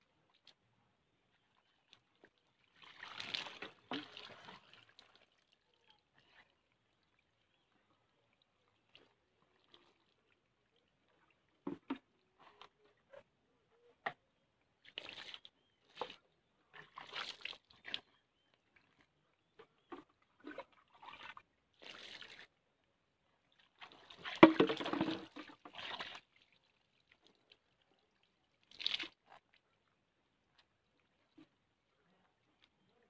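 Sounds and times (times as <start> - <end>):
water pouring and splashing: 2.6 - 5.8, 16.8 - 18.0, 20.4 - 22.5, 23.7 - 27.6, 28.6 - 29.5.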